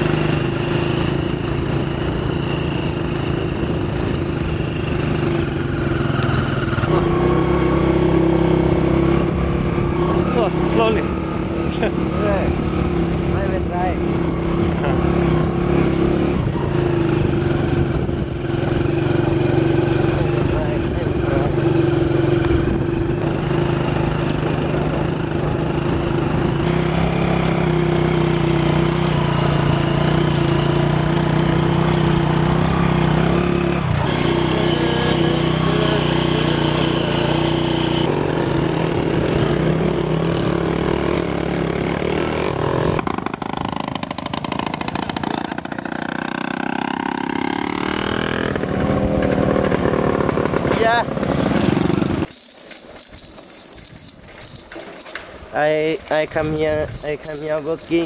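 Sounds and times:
small motorcycle engine running: 0:00.0 - 0:58.0.

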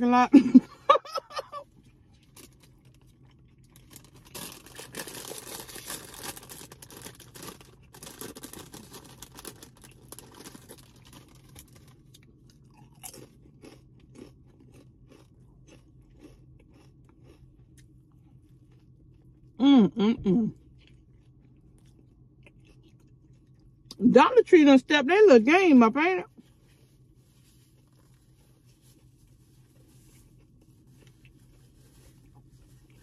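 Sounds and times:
chewing with soft crunches: 0:01.6 - 0:19.6, 0:20.3 - 0:24.0, 0:26.3 - 0:33.0
chip bag crinkling: 0:02.2 - 0:17.4.

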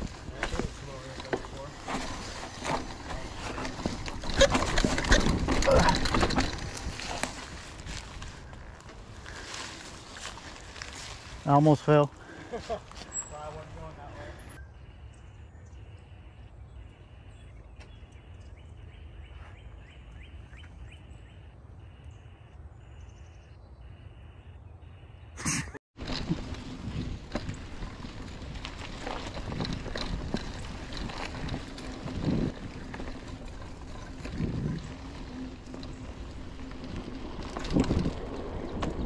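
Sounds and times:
bike rattles and knocks: 0:00.0 - 0:11.2, 0:26.0 - 0:39.0
mountain bike rolling on dirt trail: 0:00.0 - 0:21.5, 0:26.0 - 0:39.0
wind on microphone: 0:26.1 - 0:39.0.

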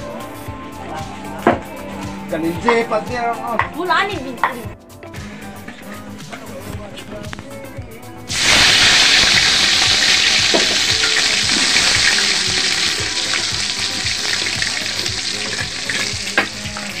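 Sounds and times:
hot oil sizzling in a wok: 0:08.3 - 0:17.0.

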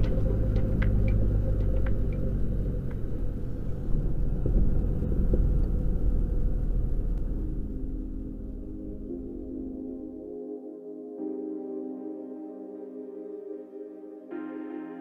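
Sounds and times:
wheels rumbling on runway: 0:00.0 - 0:08.0
aircraft engine running: 0:00.0 - 0:08.8.

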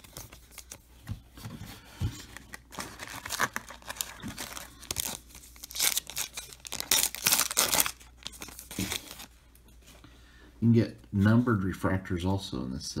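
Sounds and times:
foil wrapper crinkling: 0:02.3 - 0:09.3
foil wrapper tearing: 0:02.4 - 0:09.3.

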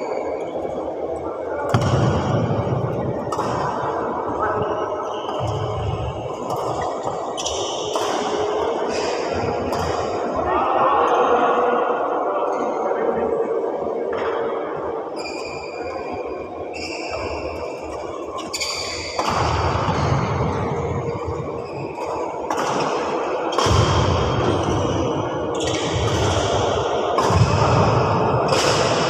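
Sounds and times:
racket striking shuttlecock: 0:06.5 - 0:10.2, 0:22.4 - 0:24.7.

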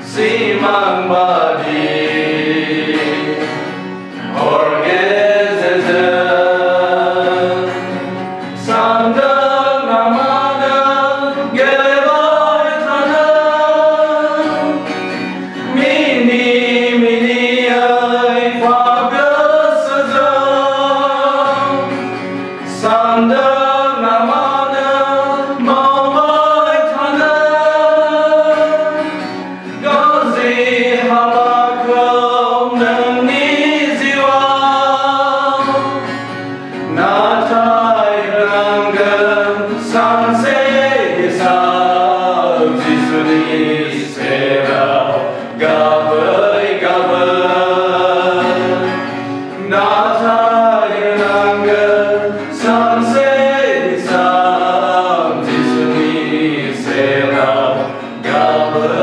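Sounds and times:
acoustic guitar: 0:00.0 - 0:59.0
men singing a hymn in harmony: 0:00.0 - 0:59.0.

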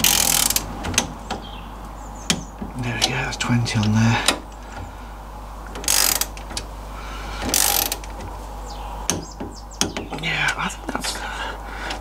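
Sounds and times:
socket wrench ratchet clicking: 0:00.0 - 0:00.6, 0:05.8 - 0:06.3, 0:07.5 - 0:08.0.

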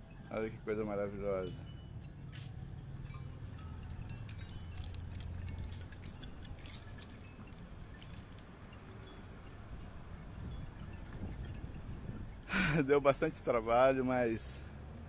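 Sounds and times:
bead curtain clinking: 0:01.4 - 0:09.9.

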